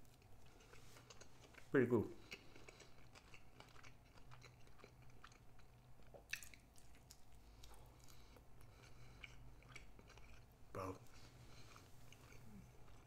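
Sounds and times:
steady low hum: 0.0 - 13.0
chewing food mouth clicks: 0.1 - 10.5.

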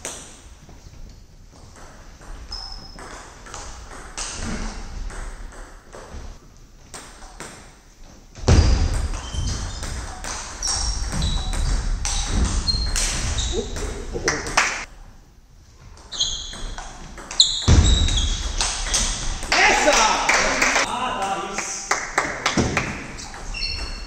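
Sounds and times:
table tennis ball pinging: 16.3 - 19.5.

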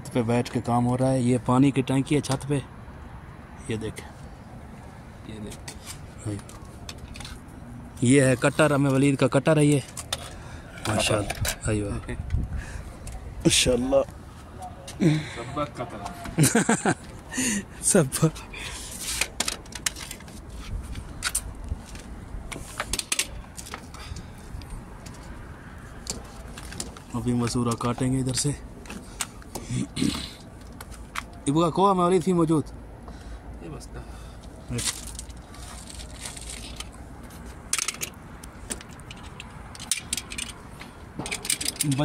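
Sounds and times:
hand tools clicking and clattering: 18.9 - 24.2, 34.7 - 42.0.

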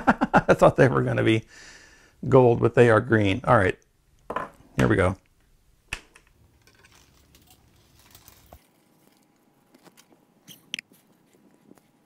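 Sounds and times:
rustling of string light wires: 6.5 - 12.0.

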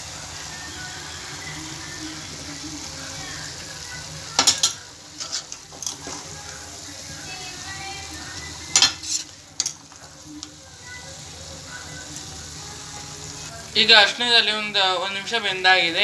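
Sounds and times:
chicken sizzling in oil: 0.0 - 16.0
spatula scraping metal pan: 4.5 - 6.0, 8.7 - 9.8.

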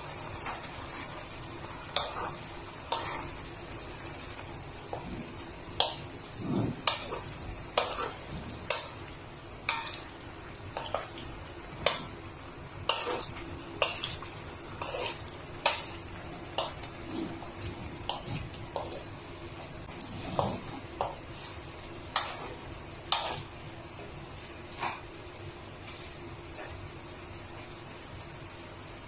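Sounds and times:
wooden spatula scraping metal pan: 1.9 - 3.4, 4.9 - 9.0, 12.8 - 21.2, 22.1 - 23.5.

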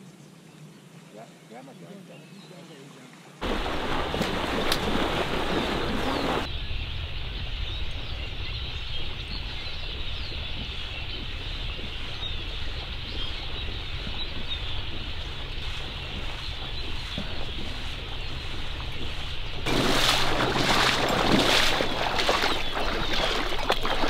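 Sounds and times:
water splashing and sloshing: 3.4 - 6.5, 7.9 - 24.0
small birds chirping: 4.6 - 24.0.

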